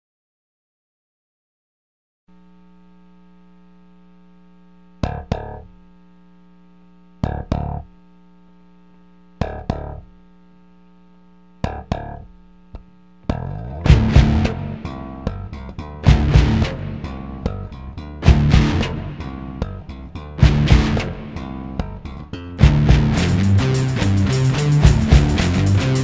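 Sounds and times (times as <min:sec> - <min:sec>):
steady hum: 0:02.3 - 0:26.0
distorted electric guitar chord hits: 0:05.0 - 0:05.8, 0:07.2 - 0:08.0, 0:09.4 - 0:10.2, 0:11.6 - 0:26.0
rock band playing: 0:13.3 - 0:26.0.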